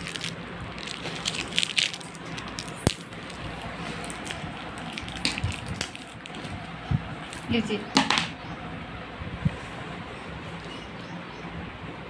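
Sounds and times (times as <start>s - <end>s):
plastic wrapper crackling: 0.0s - 7.5s.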